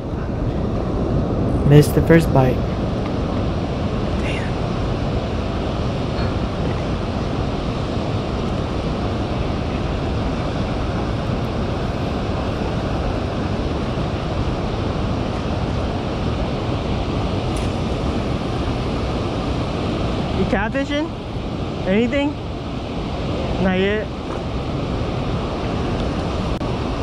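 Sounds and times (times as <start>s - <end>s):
water rushing through spillway: 0.0s - 27.0s
wind buffeting microphone: 0.0s - 27.0s.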